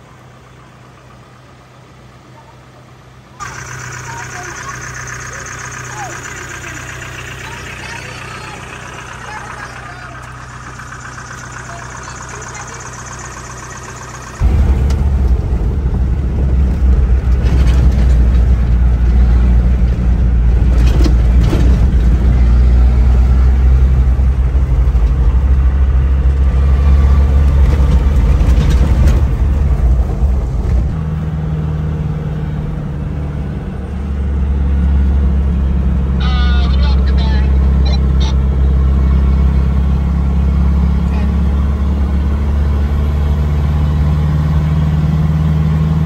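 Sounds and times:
diesel engine drone in cab: 0.0s - 46.0s
road noise: 0.0s - 46.0s
knocks over rough road: 14.4s - 22.6s.

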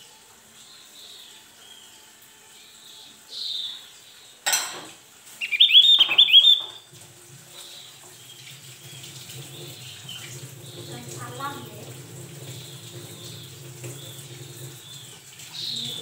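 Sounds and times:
bird high rapid chattering: 5.4s - 6.8s.

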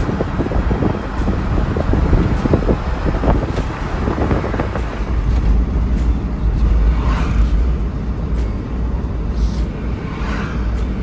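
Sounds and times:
wind rushing past: 0.0s - 5.9s, 9.6s - 11.0s
tyre and road rumble: 0.0s - 11.0s.

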